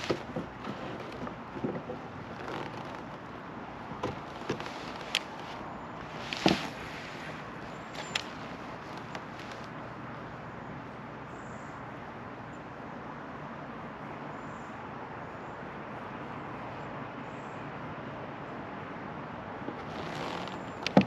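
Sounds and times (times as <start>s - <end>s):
light clicks: 8.0s - 9.8s.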